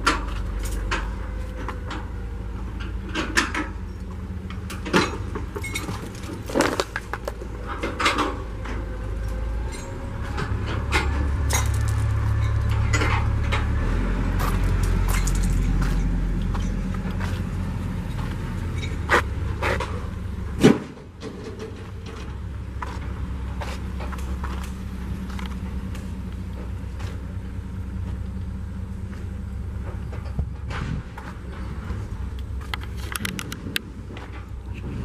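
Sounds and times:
wind buffeting microphone: 29.9 - 32.3
footsteps and handling clicks: 32.3 - 34.8.

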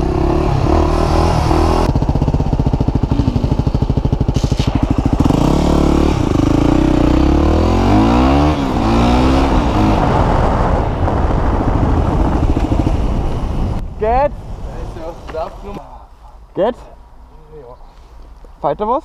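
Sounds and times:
motorcycle engine revving: 0.0 - 13.8.

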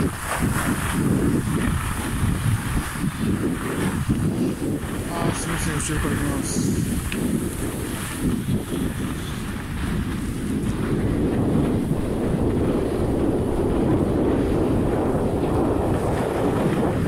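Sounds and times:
skis hissing over snow: 0.0 - 11.0
wind on microphone: 0.0 - 17.0.

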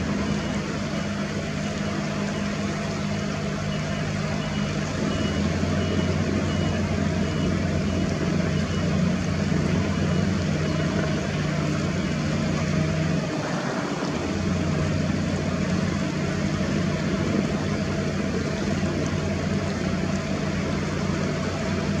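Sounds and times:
low engine drone: 0.0 - 22.0
faint high-pitched beeps: 3.6 - 9.1.

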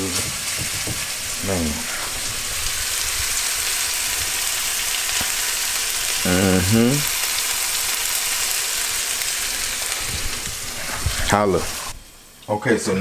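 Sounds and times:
steak sizzling in a frying pan: 0.0 - 12.4
man humming: 6.2 - 7.1.

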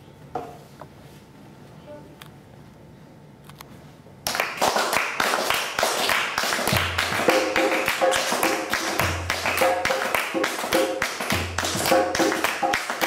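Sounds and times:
hands clapping in rhythm: 4.2 - 13.0
folk tune melody: 6.7 - 11.0.

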